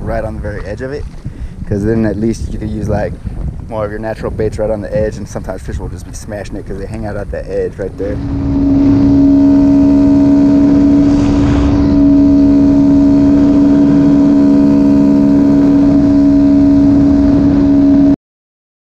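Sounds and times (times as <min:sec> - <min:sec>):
wind rushing past: 0:01.0 - 0:05.9, 0:06.6 - 0:18.2
motorcycle engine at high revs: 0:08.2 - 0:18.1.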